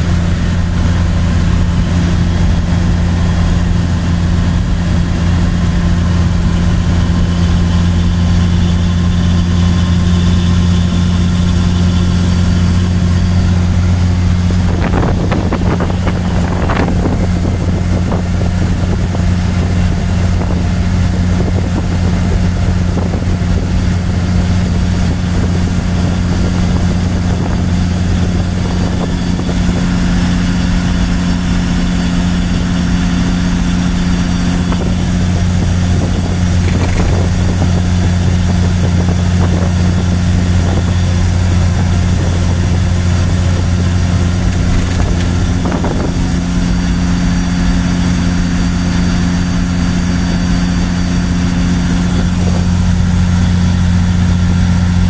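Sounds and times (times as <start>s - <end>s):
truck diesel engine drone: 0.0s - 55.0s.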